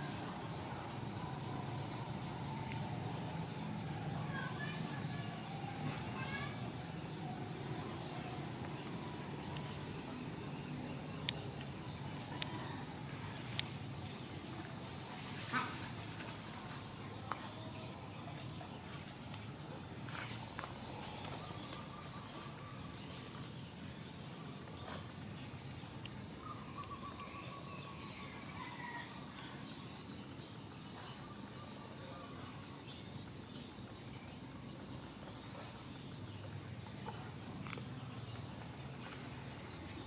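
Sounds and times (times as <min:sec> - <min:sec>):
outdoor background noise: 0:00.0 - 0:40.0
bird chirping: 0:00.8 - 0:12.8, 0:13.5 - 0:29.0.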